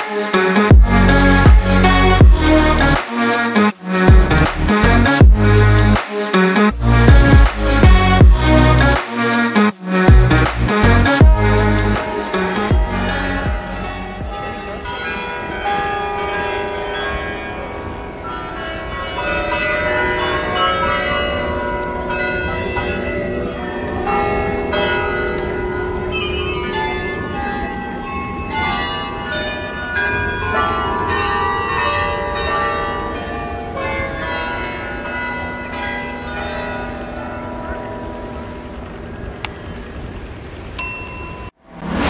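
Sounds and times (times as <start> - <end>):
church bells ringing: 11.0 - 39.4.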